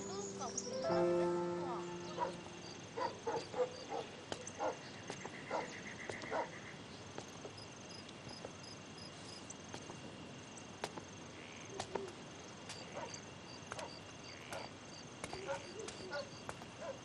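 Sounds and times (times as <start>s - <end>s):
crickets chirping: 0.0s - 17.0s
dog barking: 2.1s - 2.4s, 3.0s - 4.8s, 5.5s - 6.6s, 13.0s - 13.2s, 13.8s - 14.7s, 15.4s - 17.0s.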